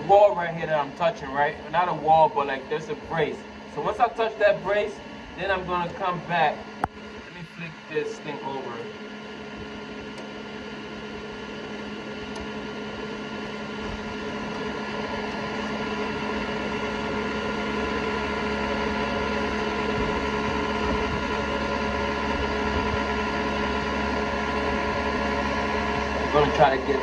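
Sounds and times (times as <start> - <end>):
printer fans and motors humming: 0.0 - 27.0
steady electrical tones: 0.0 - 27.0.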